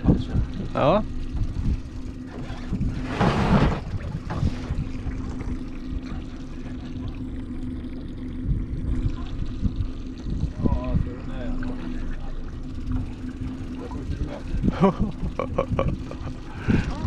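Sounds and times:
outboard motor idling: 0.0s - 17.0s
water sloshing against hull: 0.0s - 17.0s
water splashing: 0.0s - 17.0s
wind on microphone: 8.4s - 11.4s.

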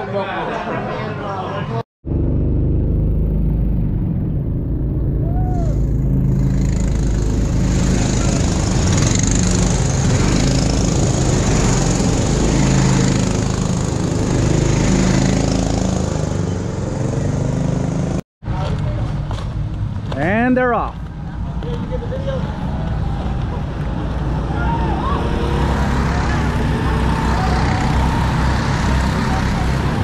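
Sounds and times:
go-kart engines droning: 2.1s - 18.9s, 20.0s - 30.0s.

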